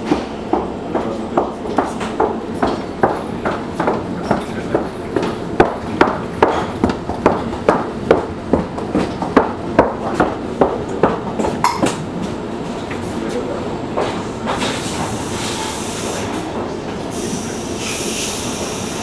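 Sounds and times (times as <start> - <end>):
train running gear knocking: 0.0 - 15.2
train rumble: 0.0 - 19.0.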